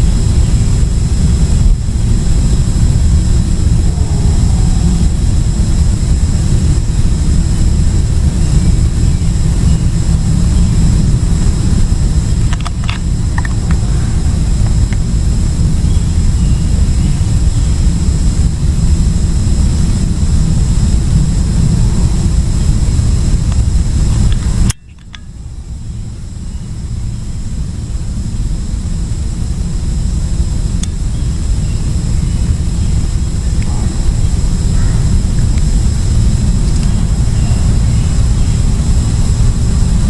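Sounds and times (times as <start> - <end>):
faint high whine: 0.0 - 40.0
loud low rumble: 0.0 - 40.0.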